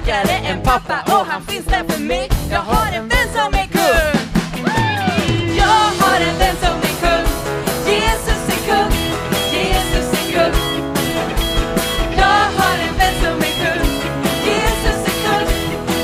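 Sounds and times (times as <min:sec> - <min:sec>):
guitar: 0:00.0 - 0:16.0
live band playing: 0:00.0 - 0:16.0
drumbeat: 0:01.8 - 0:16.0
voices singing along: 0:05.0 - 0:16.0.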